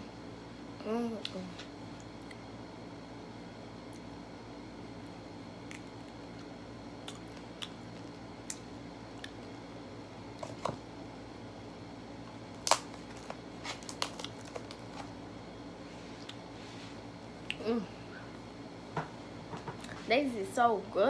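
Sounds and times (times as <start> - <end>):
low room hum: 0.0 - 21.0
candy shell crunching: 12.5 - 15.1.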